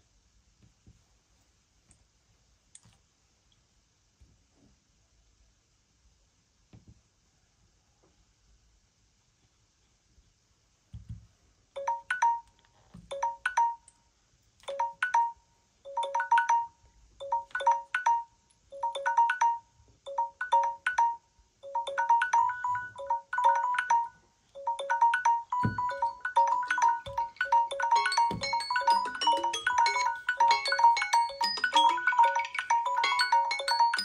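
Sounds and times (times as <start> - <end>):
phone timer alert tones: 11.8 - 12.5, 14.7 - 34.0.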